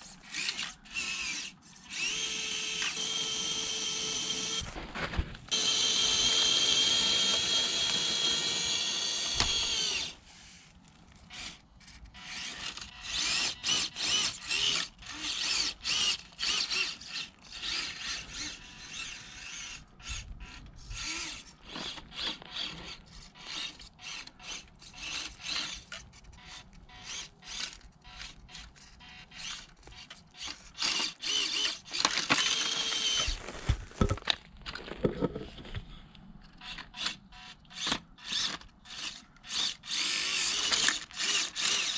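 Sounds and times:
small motor whining: 0:00.0 - 0:04.7, 0:05.5 - 0:33.4, 0:36.5 - 0:41.9
clicks and rattles over pebbles: 0:31.9 - 0:35.9.

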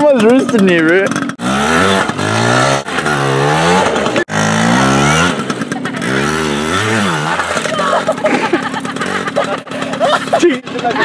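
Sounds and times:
dirt bike engine revving: 0:00.0 - 0:11.0.

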